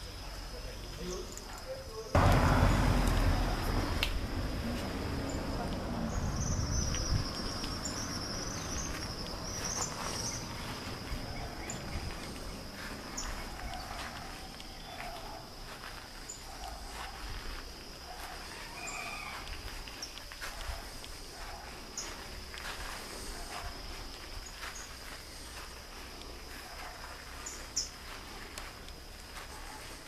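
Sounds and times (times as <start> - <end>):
high insect drone: 0.0 - 30.0
bird calls: 5.2 - 15.5, 18.3 - 22.3, 26.6 - 28.1.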